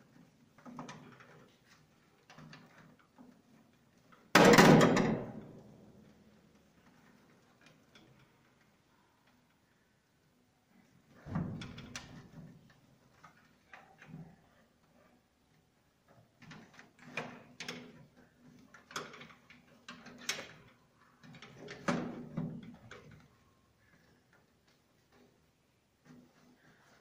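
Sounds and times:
clicks and thuds in metal board: 0:04.4 - 0:05.4.

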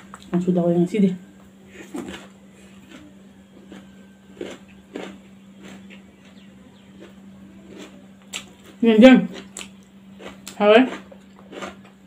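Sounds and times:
steady low hum: 0:00.0 - 0:12.0
fingers working rice: 0:01.7 - 0:11.9
wet chewing sounds: 0:01.7 - 0:12.0.

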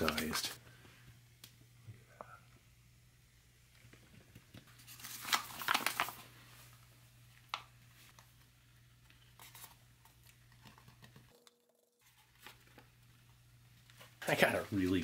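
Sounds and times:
foil pouch crinkling: 0:04.7 - 0:06.4.

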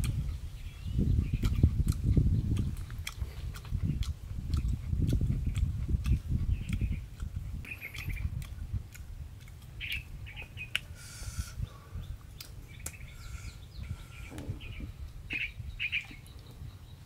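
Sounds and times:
small birds chirping: 0:00.0 - 0:17.0
person chewing: 0:01.2 - 0:11.0, 0:12.2 - 0:13.0.

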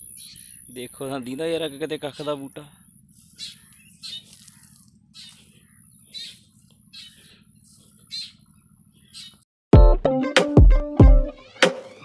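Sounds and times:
bird calling: 0:00.0 - 0:09.4.

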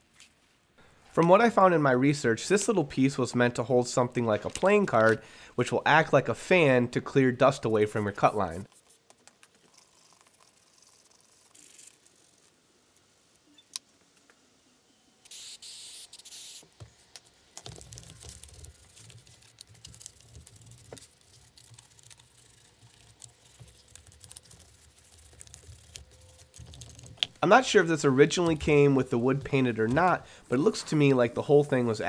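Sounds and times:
brush scrubbing on wood: 0:27.5 - 0:32.0.

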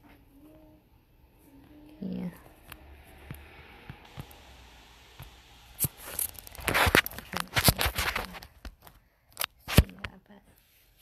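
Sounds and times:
beads clicking: 0:05.8 - 0:08.1
crinkly plastic rustling: 0:05.8 - 0:10.4.

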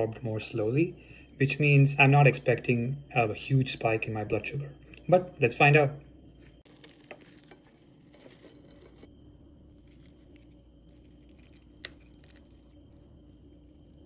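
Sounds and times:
bread tearing crackles: 0:06.6 - 0:14.0.

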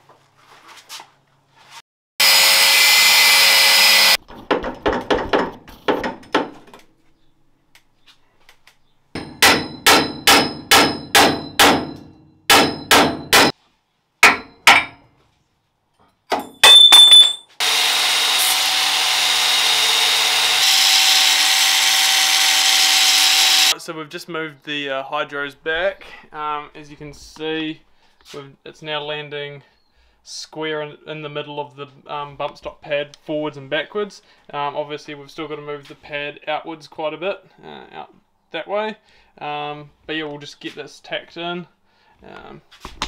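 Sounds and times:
power grinder: 0:02.2 - 0:04.2, 0:17.6 - 0:23.8.

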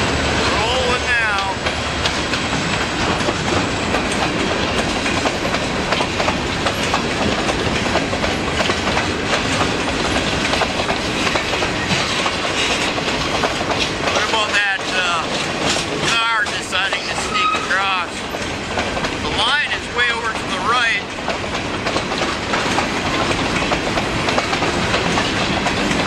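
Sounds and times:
freight wheels rumbling on rail: 0:00.0 - 0:26.0
wheels clanking over rail joints: 0:00.0 - 0:26.0.

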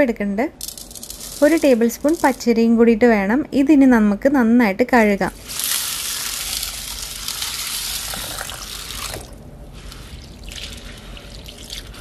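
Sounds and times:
water pouring into a bowl: 0:05.4 - 0:09.4, 0:10.0 - 0:12.0
hand swishing grains in water: 0:05.4 - 0:12.0.

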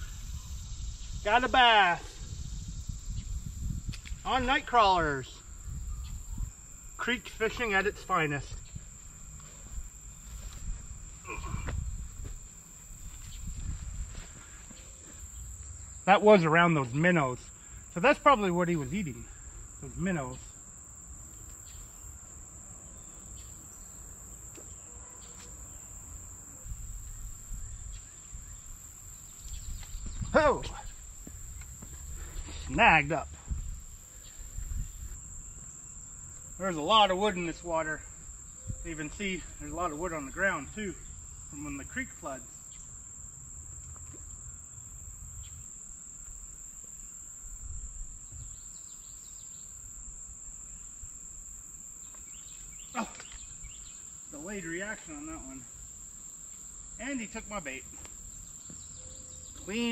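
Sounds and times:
high-pitched insect trill: 0:00.0 - 0:59.9
wind buffeting microphone: 0:02.0 - 0:06.9, 0:10.5 - 0:14.3, 0:29.5 - 0:32.6, 0:33.3 - 0:35.5
faint bird chirps: 0:05.4 - 0:06.5, 0:58.4 - 0:59.9.

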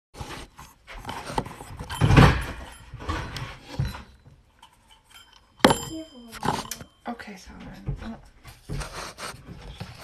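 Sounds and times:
phone rubbing and rustling: 0:00.2 - 0:02.0.

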